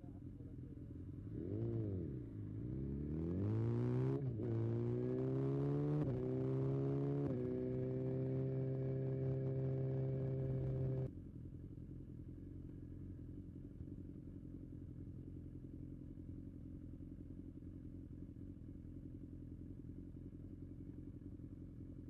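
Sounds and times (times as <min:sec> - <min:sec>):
motorcycle engine idling: 0:00.0 - 0:01.4, 0:11.1 - 0:22.0.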